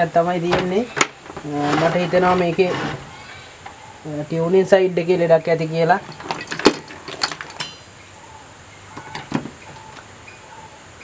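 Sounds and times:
screwdriver and parts clattering: 5.9s - 7.8s.

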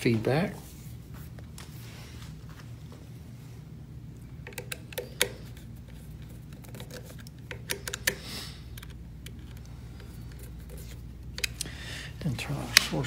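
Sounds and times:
steady low hum: 0.0s - 13.0s
screwdriver clicks and taps: 4.4s - 5.6s, 6.2s - 8.2s.

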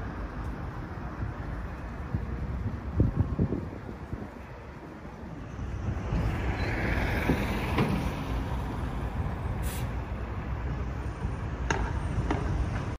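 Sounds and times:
bus engine rumbling: 0.0s - 12.9s
short high hiss: 9.6s - 10.0s.

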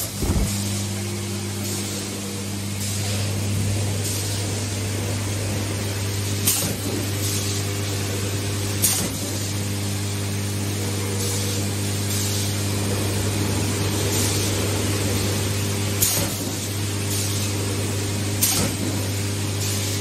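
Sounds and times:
machine humming: 0.0s - 8.9s
pneumatic air hiss: 6.4s - 7.6s, 8.8s - 9.4s, 16.0s - 17.5s, 18.4s - 19.9s.

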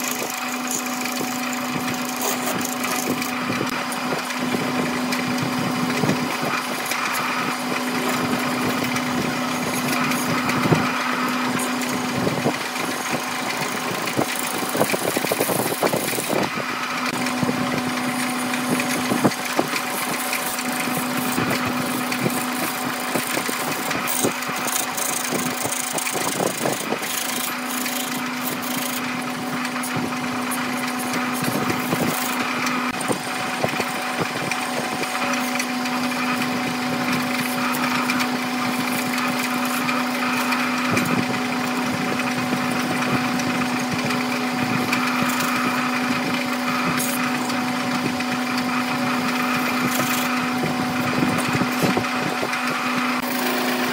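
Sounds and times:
gouge scraping spinning blank: 0.0s - 33.0s, 52.7s - 53.9s
wood lathe motor hum: 0.0s - 53.9s.

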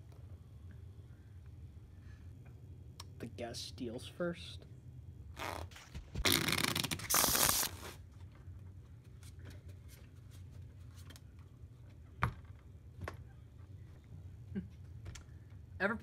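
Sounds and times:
playing cards shuffling: 5.4s - 8.0s.

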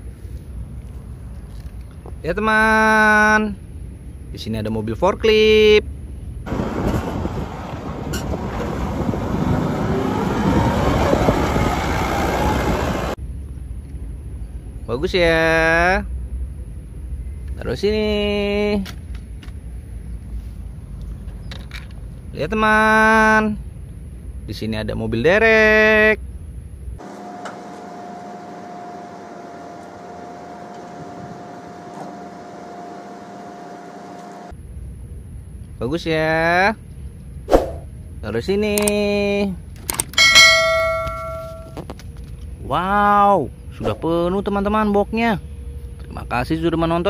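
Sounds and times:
crane mechanical hum: 5.8s - 15.0s, 26.2s - 35.6s
forklift engine running: 6.1s - 13.2s, 27.0s - 34.5s.

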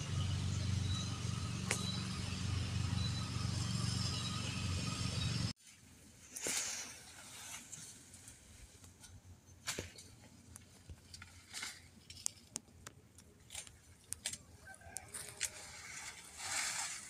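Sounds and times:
light clicks and rustles: 7.4s - 16.9s.

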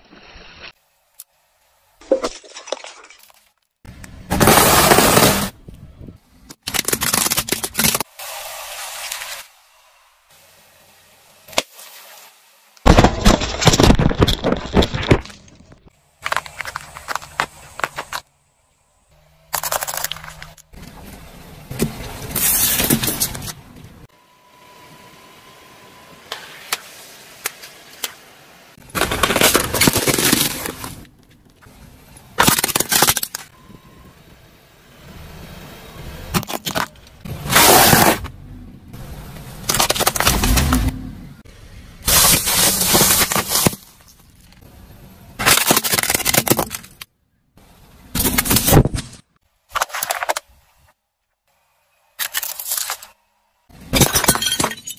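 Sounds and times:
plastic toys cracking: 6.5s - 8.1s, 19.5s - 20.7s, 32.4s - 33.5s, 39.6s - 40.8s, 45.4s - 47.1s
foil tray crunching: 6.6s - 8.0s, 16.2s - 18.2s, 28.9s - 31.0s, 39.7s - 40.7s, 42.1s - 44.2s, 45.4s - 47.0s
tyre crushing aluminium cans: 39.6s - 40.8s, 45.4s - 47.0s.

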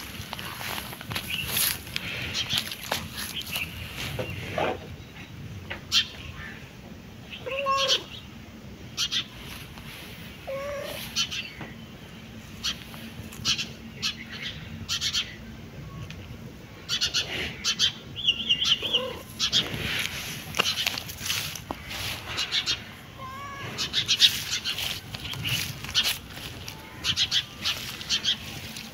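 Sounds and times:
cat meowing: 7.4s - 8.1s, 23.2s - 23.9s.

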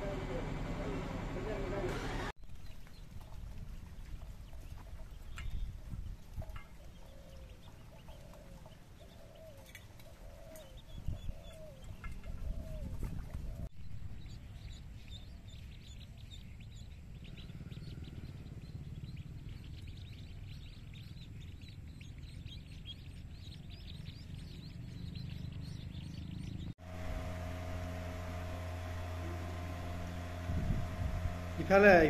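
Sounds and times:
steady hum: 0.0s - 2.4s, 26.8s - 32.0s
ducklings peeping: 0.0s - 32.0s
low rumble: 26.8s - 32.0s.

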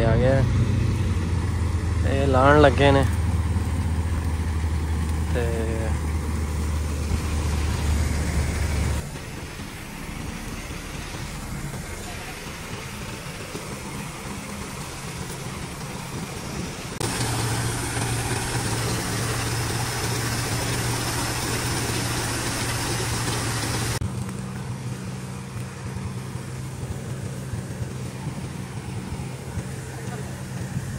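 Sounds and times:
combine harvester engine hum: 0.0s - 30.9s
strong hiss: 3.8s - 24.0s
auger pouring grain: 6.6s - 24.0s.

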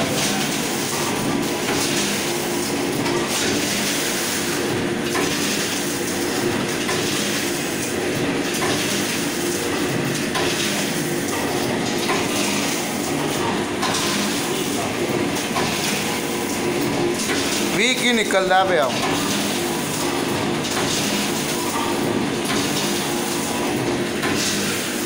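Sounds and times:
packing machine running: 0.0s - 25.0s.

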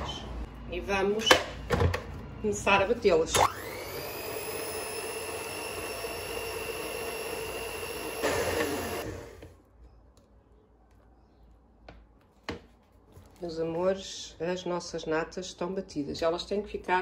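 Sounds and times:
electric hand mixer whine: 3.4s - 9.5s.

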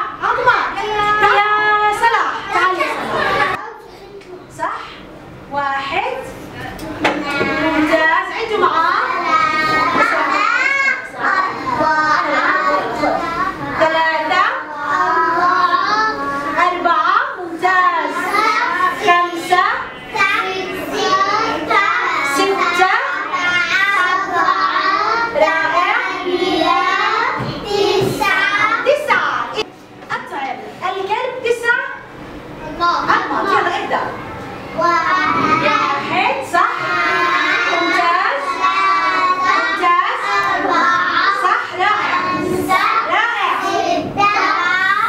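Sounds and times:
children singing together: 14.6s - 16.6s, 19.9s - 28.8s, 36.7s - 45.0s
children singing: 36.8s - 45.0s.

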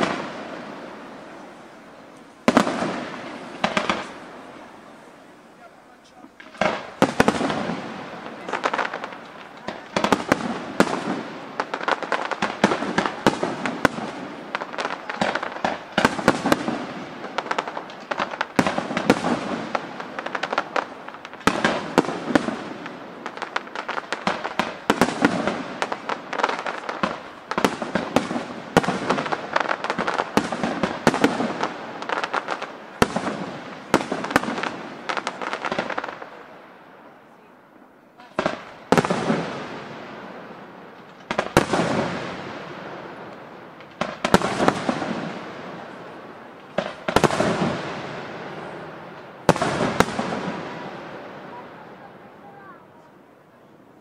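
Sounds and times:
firework crackling: 0.0s - 54.0s
firework shells bursting: 2.1s - 4.4s.

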